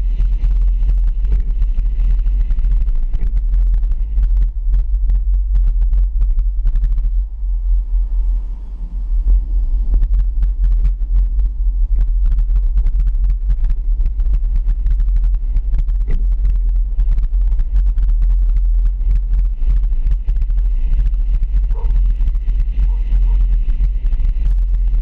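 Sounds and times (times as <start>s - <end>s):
vehicle engine rumble: 0.0s - 25.0s
wind on microphone: 0.0s - 25.0s.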